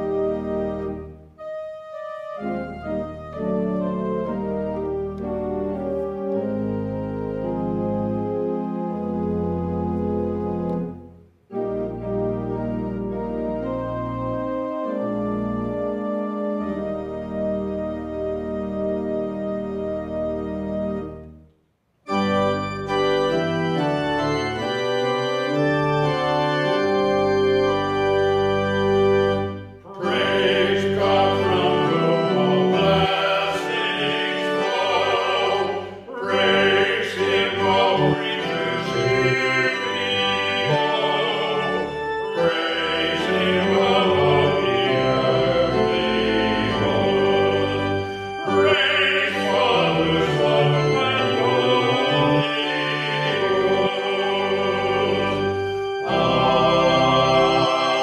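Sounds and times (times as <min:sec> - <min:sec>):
church organ chords: 0:00.0 - 0:58.0
men singing a hymn: 0:29.9 - 0:58.0.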